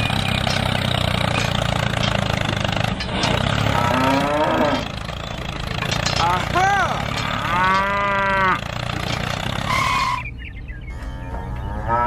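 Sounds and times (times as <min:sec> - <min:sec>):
cow mooing: 0:03.5 - 0:05.1, 0:06.2 - 0:08.7, 0:09.6 - 0:10.2, 0:11.0 - 0:12.0.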